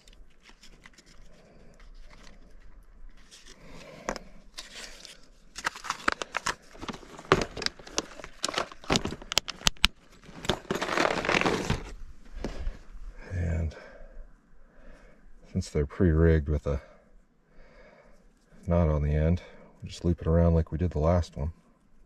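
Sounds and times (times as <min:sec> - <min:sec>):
plastic blister pack crinkling: 0:04.6 - 0:11.9
tackle bag rustling: 0:05.6 - 0:12.7.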